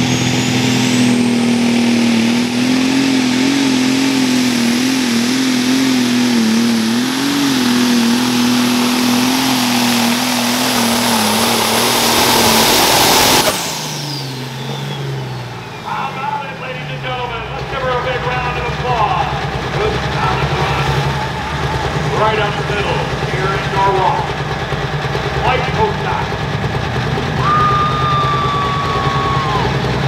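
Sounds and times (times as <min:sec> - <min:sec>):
diesel engine running under load: 0:00.0 - 0:30.0
high whistle: 0:12.5 - 0:16.0.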